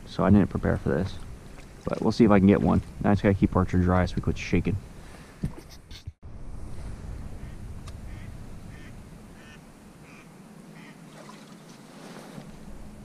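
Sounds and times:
ducks quacking: 0:07.4 - 0:11.0.

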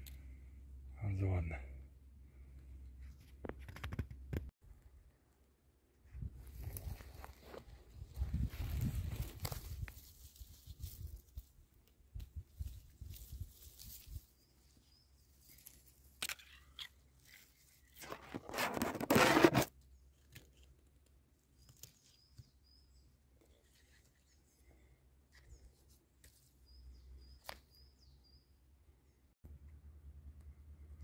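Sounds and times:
dry grass rustling and tearing: 0:06.4 - 0:11.6, 0:12.2 - 0:14.3.

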